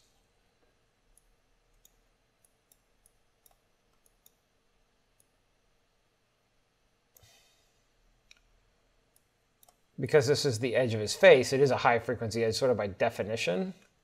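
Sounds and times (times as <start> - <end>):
computer mouse clicks: 1.1 - 4.4, 7.1 - 7.4, 8.2 - 8.5, 9.1 - 9.9.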